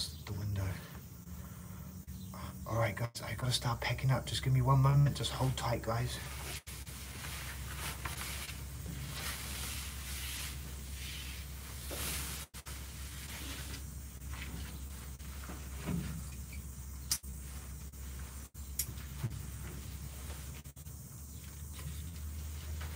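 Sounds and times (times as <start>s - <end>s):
fabric rustling and swishing: 6.3s - 15.8s
sharp click: 17.0s - 17.3s.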